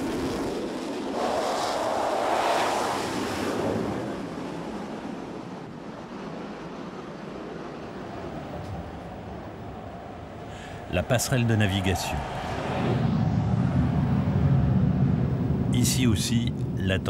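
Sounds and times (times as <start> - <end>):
fighter jet rushing: 0.0 - 17.0
wind rushing across deck: 0.0 - 17.0.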